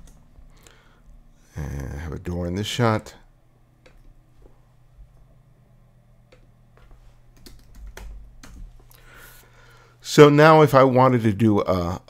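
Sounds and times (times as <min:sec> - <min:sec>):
faint low hum: 0:00.0 - 0:12.0
keyboard typing: 0:06.3 - 0:08.8.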